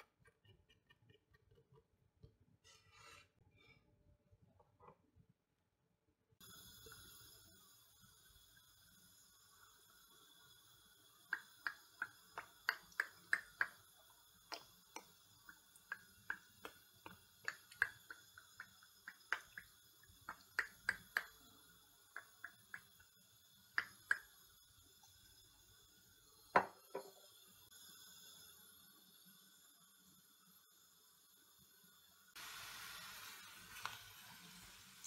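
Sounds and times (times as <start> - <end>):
oil pouring onto onions clicks: 32.4 - 35.0.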